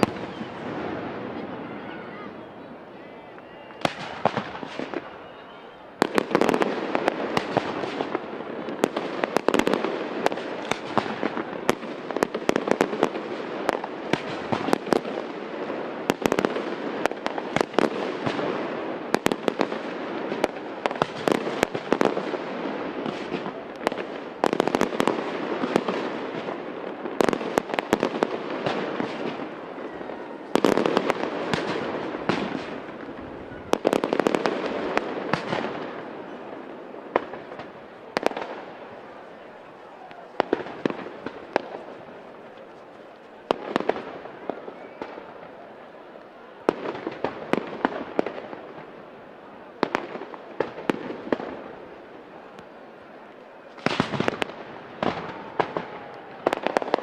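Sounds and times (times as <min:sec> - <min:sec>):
dense fireworks crackle: 0:00.0 - 0:57.0
fireworks shells bursting with bangs: 0:06.0 - 0:45.6, 0:53.7 - 0:57.0.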